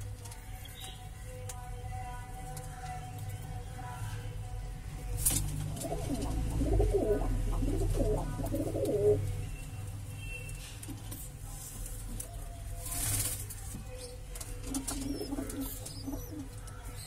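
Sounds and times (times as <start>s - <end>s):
pigeon cooing: 5.7s - 9.4s, 14.7s - 16.6s.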